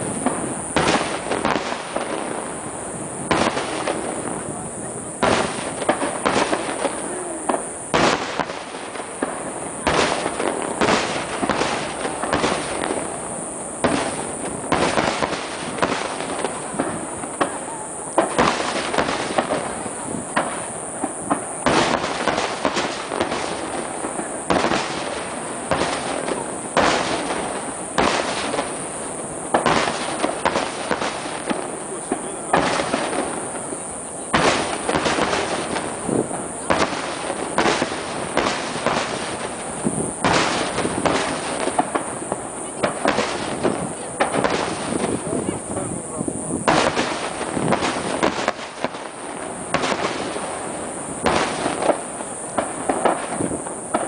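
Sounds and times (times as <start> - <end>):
firework shells bursting: 0.0 - 54.0.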